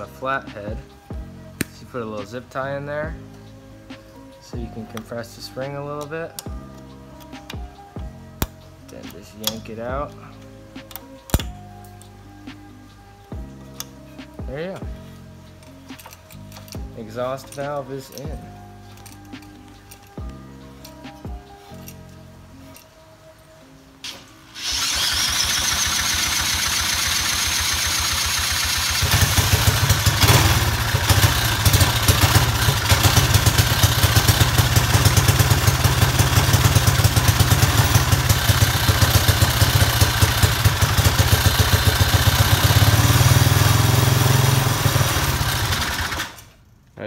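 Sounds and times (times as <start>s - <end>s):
small engine running: 24.5s - 46.4s.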